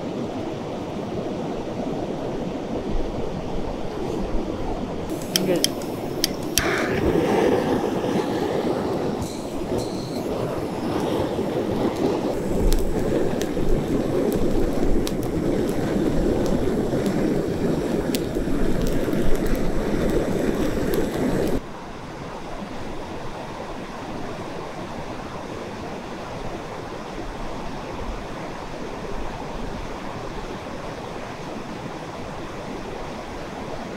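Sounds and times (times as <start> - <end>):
mountain river rushing: 0.0 - 22.2
gas torch roaring: 5.1 - 21.6.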